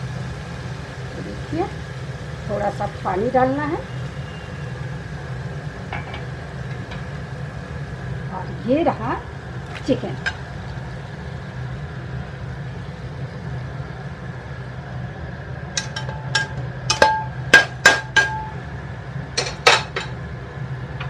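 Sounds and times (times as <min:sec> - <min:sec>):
metal cookware clinking: 0:15.8 - 0:18.6, 0:19.4 - 0:20.2.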